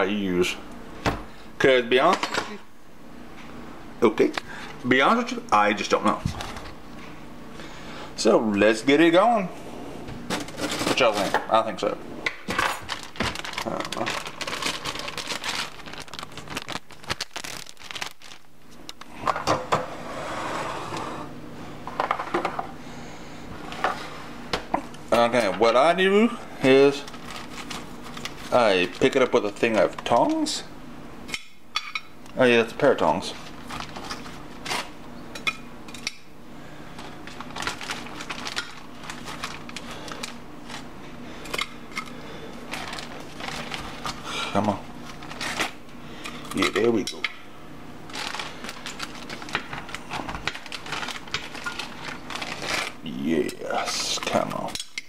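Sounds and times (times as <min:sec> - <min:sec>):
plastic bag crinkling: 0:12.7 - 0:18.8, 0:26.7 - 0:30.5, 0:33.3 - 0:34.9, 0:37.0 - 0:40.9, 0:42.7 - 0:45.8, 0:48.0 - 0:53.1.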